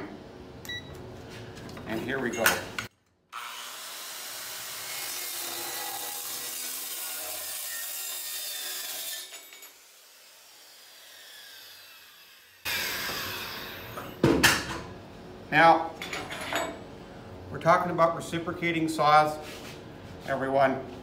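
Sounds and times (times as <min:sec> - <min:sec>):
saw blade winding down: 0:03.3 - 0:14.0
circular saw cutting metal: 0:03.4 - 0:14.0.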